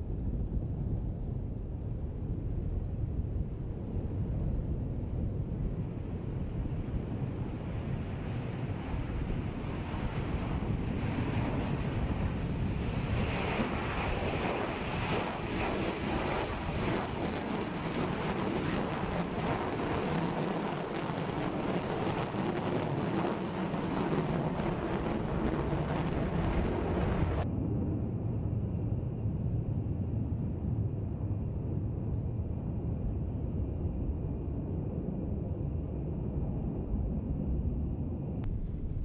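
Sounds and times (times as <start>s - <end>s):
jet engines roaring: 6.9s - 27.5s.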